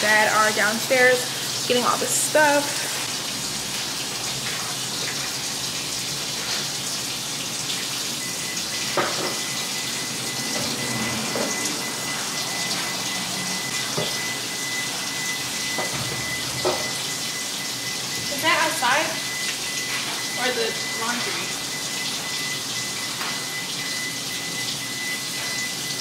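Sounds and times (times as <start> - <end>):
sink tap running: 0.0 - 26.0
thin high tone: 8.1 - 26.0.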